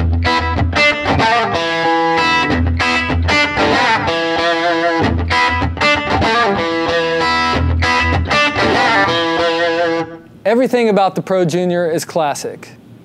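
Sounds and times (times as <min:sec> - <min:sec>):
electric guitar riff with slapback delay: 0:00.0 - 0:10.3.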